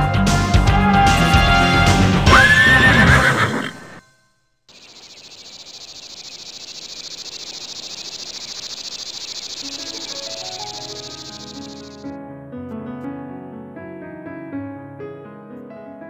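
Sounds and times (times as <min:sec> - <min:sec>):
horse whinnying: 0:02.3 - 0:04.0
chorus of insects: 0:04.7 - 0:12.1.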